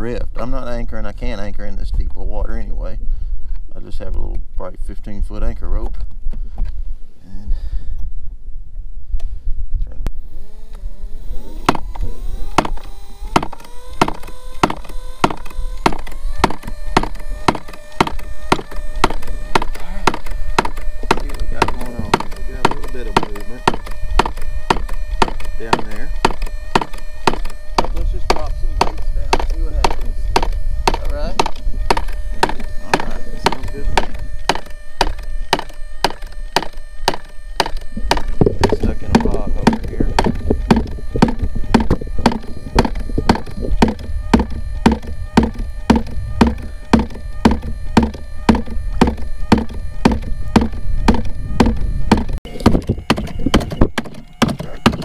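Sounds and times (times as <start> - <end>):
fish thumper knocking: 34.0 - 55.0.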